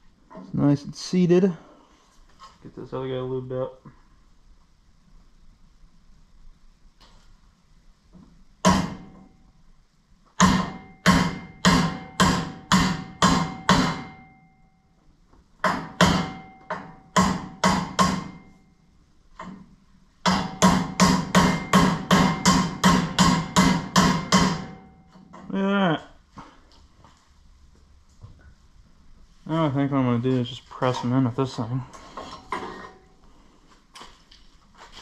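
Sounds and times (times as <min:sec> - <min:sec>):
hammer tapping metal: 0:10.4 - 0:14.5, 0:15.6 - 0:18.7, 0:20.2 - 0:25.5.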